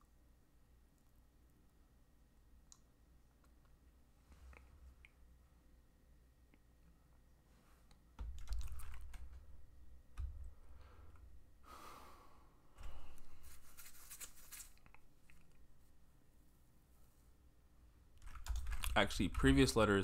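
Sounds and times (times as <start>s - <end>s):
keyboard keys clicking: 8.2s - 10.5s, 18.2s - 19.9s
brief rustle: 13.3s - 15.6s.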